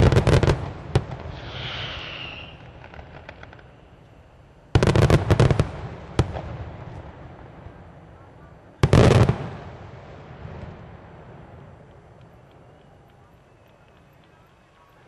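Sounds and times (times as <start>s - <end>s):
firework bangs: 0.0s - 4.0s, 4.7s - 14.2s
firework crackling: 0.0s - 8.1s.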